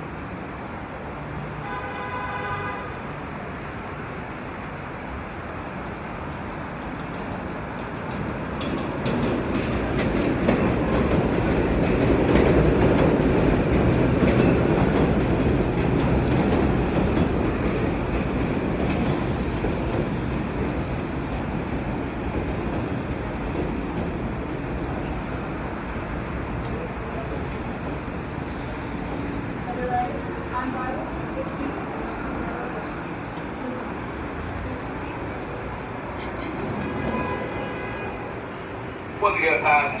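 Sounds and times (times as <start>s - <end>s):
subway train pulling in: 0.0s - 40.0s
wheels clacking over rail joints: 6.8s - 20.2s.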